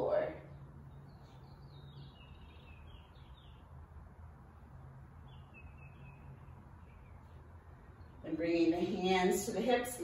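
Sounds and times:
low steady hum: 0.0 - 10.0
faint bird chirps: 0.4 - 3.9, 5.2 - 8.4.

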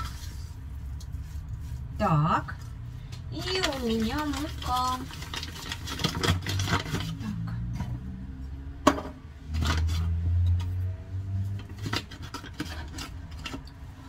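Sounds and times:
paper bag crinkling: 3.4 - 7.2.

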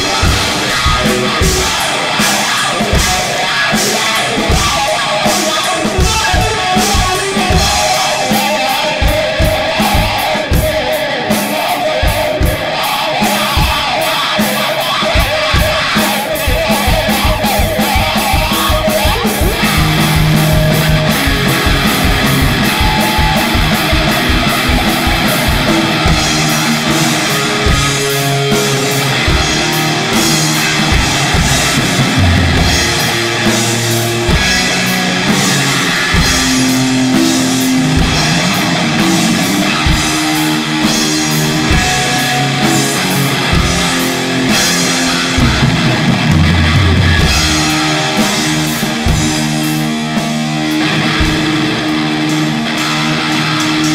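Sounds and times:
fast drum hits: 0.0 - 51.9
heavy rock band playing: 0.0 - 53.9.

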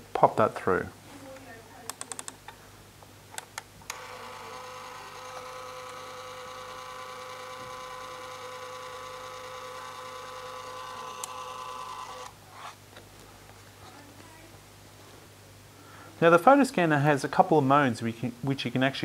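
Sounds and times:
scanner feed motor humming: 3.9 - 12.4.

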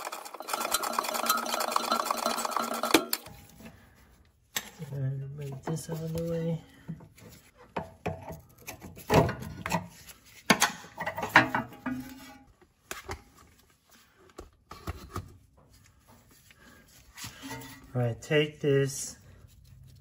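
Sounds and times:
tools and metal parts clanking: 0.0 - 3.6, 10.5 - 12.5.

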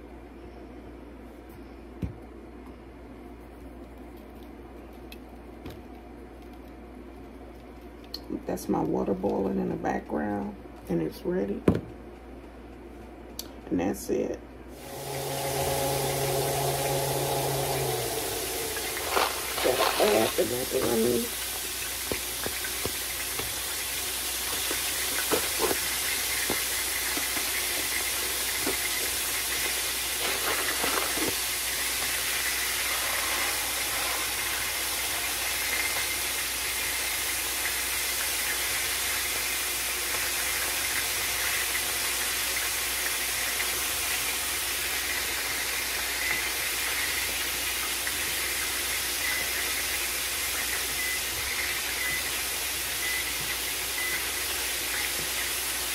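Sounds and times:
pot of water boiling: 14.7 - 55.9.

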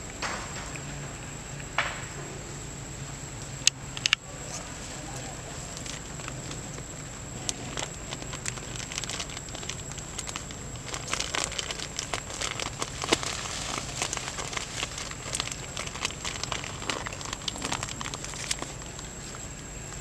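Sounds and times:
dry leaves crackling and rustling: 4.2 - 20.0.

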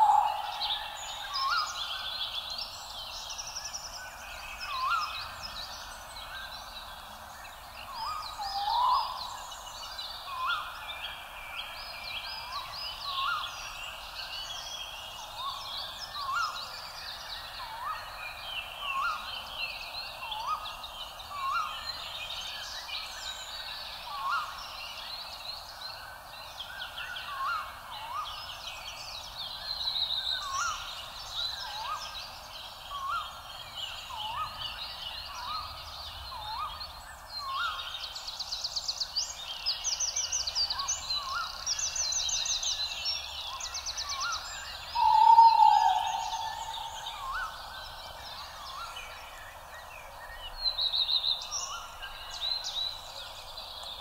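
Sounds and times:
fast trilling birdsong: 0.0 - 1.1, 44.1 - 48.2
birds chirping and twittering: 0.0 - 54.0
upward-flicking bird call: 45.0 - 47.4.

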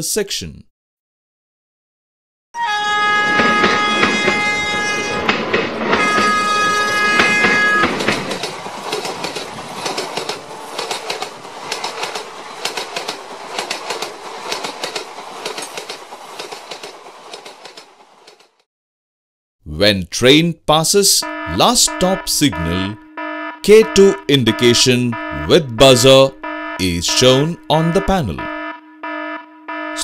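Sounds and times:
train horn blasts: 2.6 - 5.4, 6.0 - 8.0, 21.2 - 27.5, 28.4 - 30.0
train wheels clattering over rails: 3.3 - 18.6.

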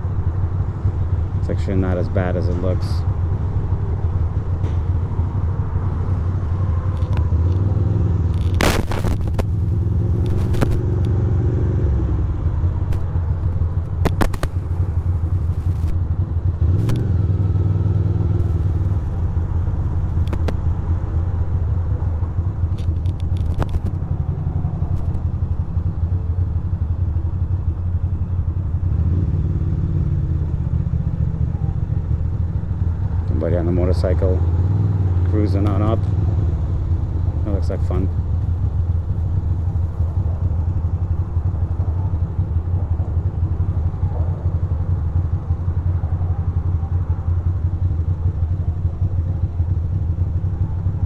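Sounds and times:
motorcycle engine running: 0.0 - 51.0
sharp clicks or knocks: 14.0 - 14.7, 20.2 - 20.6.

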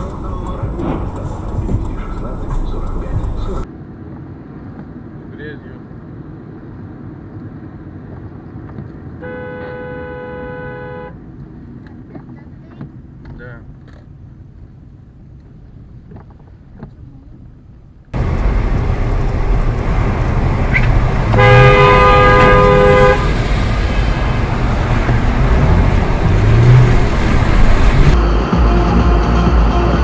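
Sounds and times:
loud street traffic: 0.0 - 30.0
road hum inside a car: 0.0 - 30.0
vehicle horn blast: 9.2 - 11.2, 21.3 - 23.4.

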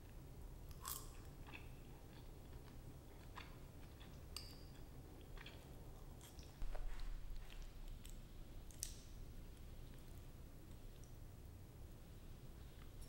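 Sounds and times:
chewing: 0.7 - 9.0.

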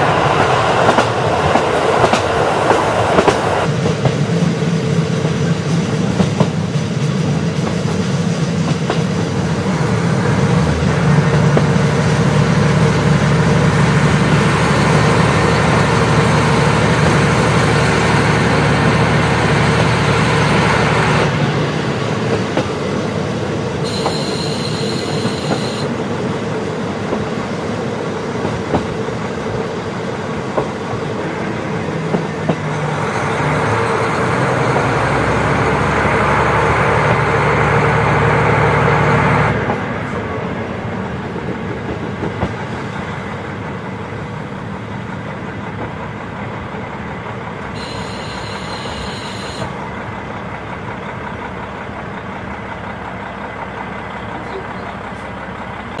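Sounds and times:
diesel railcar engine: 0.0 - 56.0
rail-joint clicks: 0.2 - 4.3, 5.2 - 9.5, 22.0 - 23.2, 23.9 - 26.0, 27.0 - 27.5, 28.3 - 29.6, 30.4 - 34.5, 41.3 - 56.0
high squeal: 47.8 - 49.6.

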